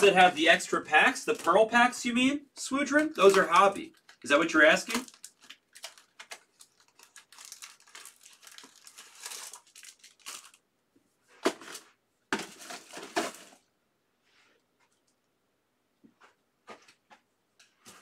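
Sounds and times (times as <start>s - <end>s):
plastic wrapping crinkling: 0.0s - 10.6s, 11.4s - 13.7s.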